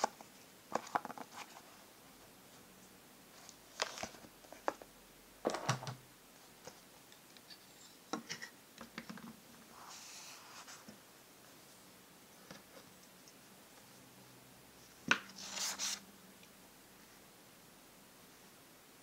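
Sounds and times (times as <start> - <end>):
soft rustle: 9.6 - 14.1.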